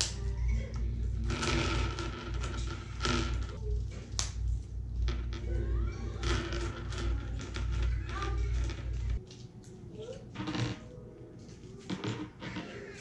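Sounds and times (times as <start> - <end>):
steady low hum: 0.0 - 9.9.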